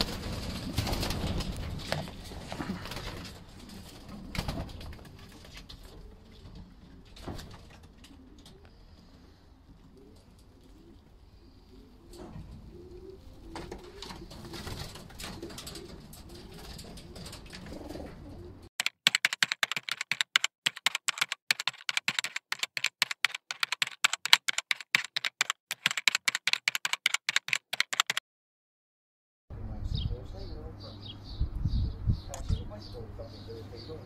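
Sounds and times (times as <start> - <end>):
pigeons cooing: 2.6 - 18.7
keyboard typing clicks: 18.8 - 28.2.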